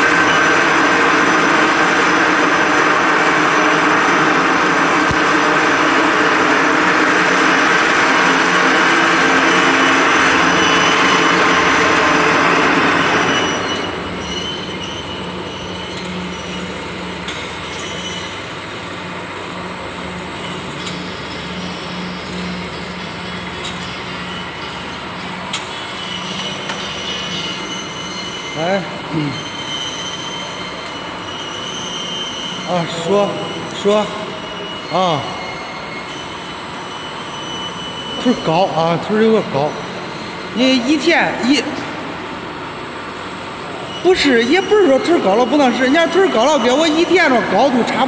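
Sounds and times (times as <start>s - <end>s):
conveyor machine noise with whining: 0.0s - 48.0s.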